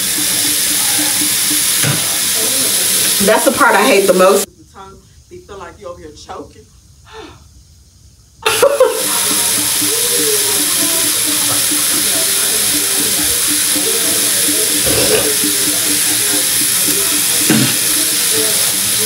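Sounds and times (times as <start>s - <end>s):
tap running into sink: 1.6s - 2.3s, 17.4s - 17.8s.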